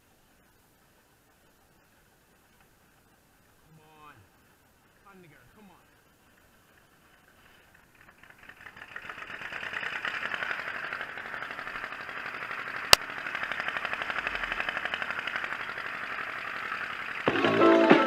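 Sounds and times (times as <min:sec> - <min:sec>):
tractor engine running: 0:05.9 - 0:18.0.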